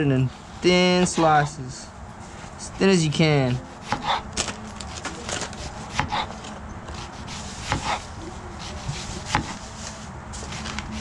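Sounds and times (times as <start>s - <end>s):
knife slicing onion on board: 3.7s - 4.2s, 5.6s - 9.6s.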